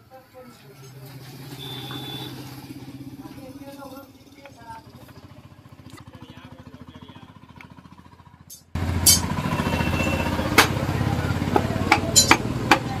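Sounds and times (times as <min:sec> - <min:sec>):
motorcycle engine idling: 0:00.4 - 0:13.0.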